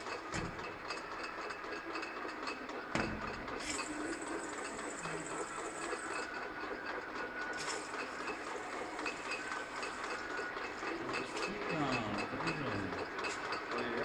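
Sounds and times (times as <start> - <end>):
bottling machine clatter: 0.0 - 14.0.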